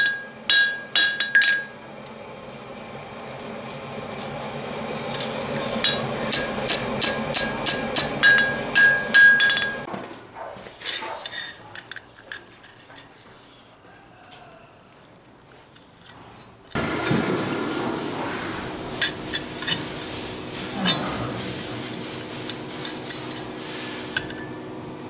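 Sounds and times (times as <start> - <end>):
steel pieces clinking on anvil: 0.0 - 1.7, 5.2 - 6.4, 7.0 - 9.9, 10.8 - 13.1
hammer ringing on steel anvil: 0.0 - 1.8, 5.8 - 9.9.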